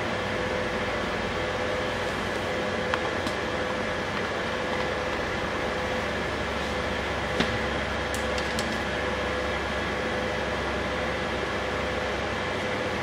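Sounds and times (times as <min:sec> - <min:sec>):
machinery hum and hiss: 0:00.0 - 0:13.0.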